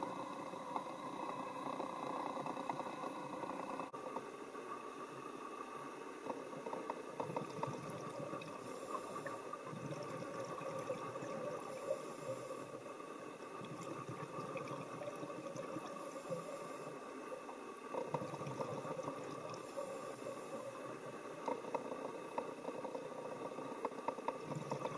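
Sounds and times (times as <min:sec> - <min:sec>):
steady hum: 0:00.0 - 0:24.9
underwater bubbling: 0:00.0 - 0:24.9
diver's regulator breathing hiss: 0:08.6 - 0:09.6, 0:11.6 - 0:12.9, 0:15.9 - 0:17.1, 0:19.6 - 0:21.0.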